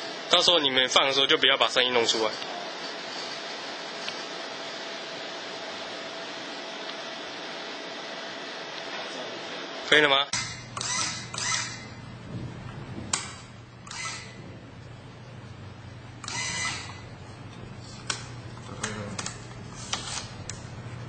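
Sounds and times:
steady machine hum: 0.0s - 21.0s
sharp machine clicks: 10.4s - 11.8s, 13.2s - 14.3s.

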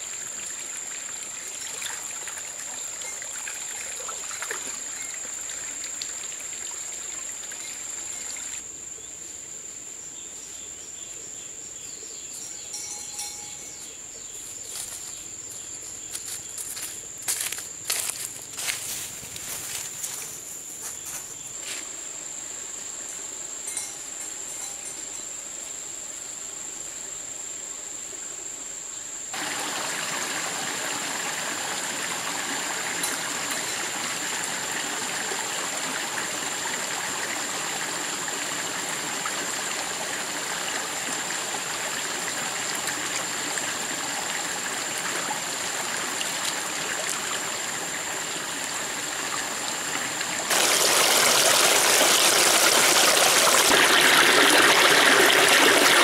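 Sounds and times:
stream water rushing: 0.0s - 8.6s, 29.3s - 56.0s.

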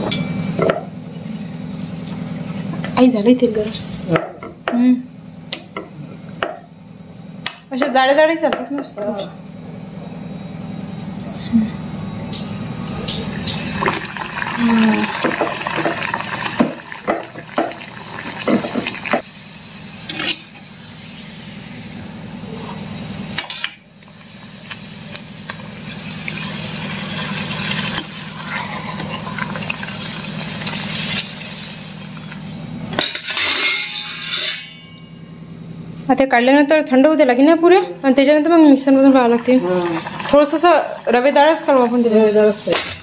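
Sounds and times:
food deep-frying in hot oil: 12.3s - 32.9s, 38.8s - 42.7s.

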